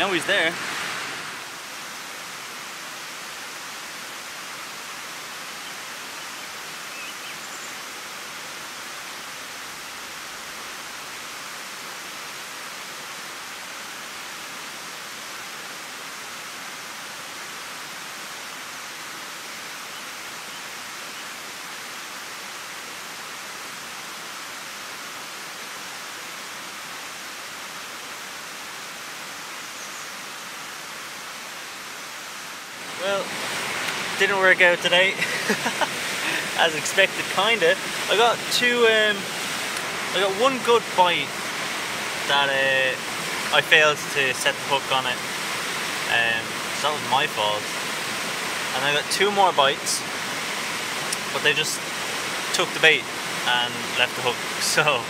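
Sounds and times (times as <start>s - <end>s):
river rushing over rocks: 0.0s - 55.0s.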